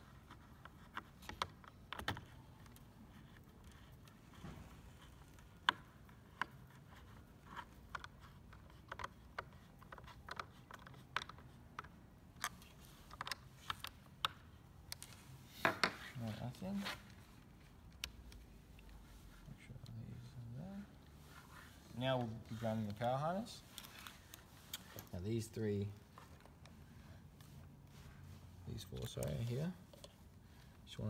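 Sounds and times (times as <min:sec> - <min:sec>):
parts being handled: 0:00.0 - 0:31.0.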